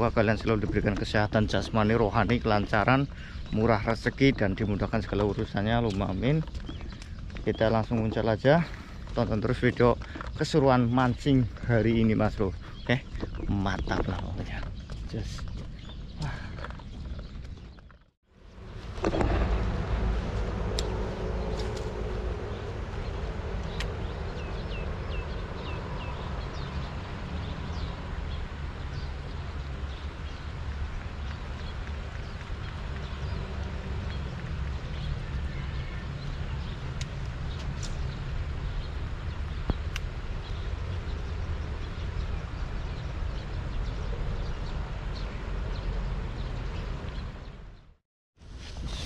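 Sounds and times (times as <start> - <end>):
low rumble: 13.0 - 48.0
bird chirping: 20.7 - 47.9.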